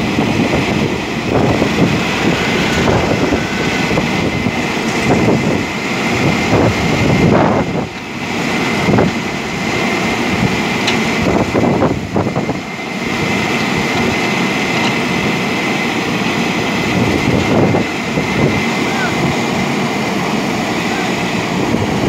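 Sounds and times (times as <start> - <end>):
diesel engine running: 0.0 - 22.0
thin high whine: 1.1 - 6.1.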